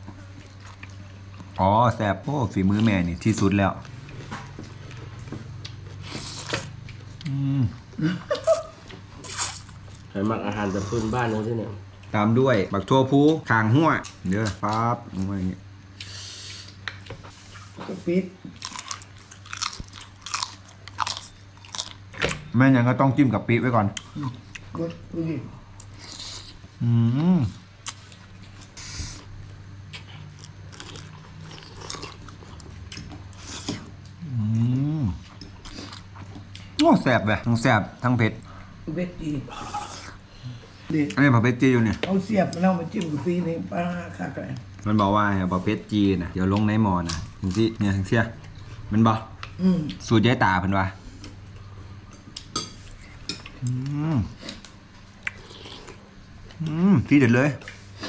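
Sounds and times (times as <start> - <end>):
chewing crisp food: 0.1 - 2.0, 2.7 - 7.5, 18.6 - 22.2, 25.6 - 36.8, 46.4 - 50.1, 51.2 - 56.9.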